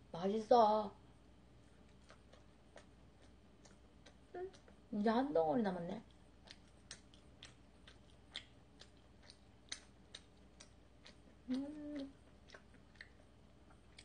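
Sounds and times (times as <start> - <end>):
wet chewing mouth clicks: 1.9 - 4.9, 6.0 - 14.0
person humming mm: 11.4 - 12.2.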